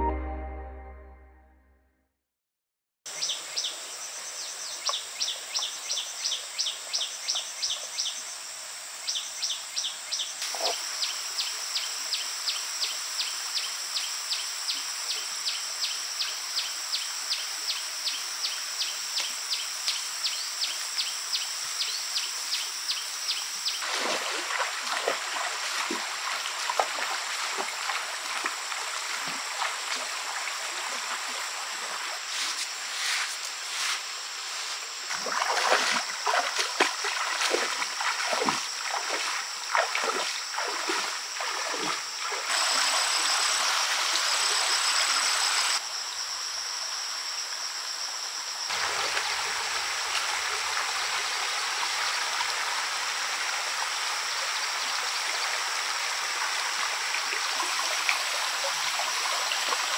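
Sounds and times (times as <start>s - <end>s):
high insect drone: 3.1s - 59.9s
shallow stream rushing: 23.8s - 32.3s, 35.1s - 45.7s, 48.7s - 52.2s
splashes of wading through water: 23.8s - 32.7s, 35.1s - 42.8s
rhythmic insect chirping: 33.5s - 43.5s.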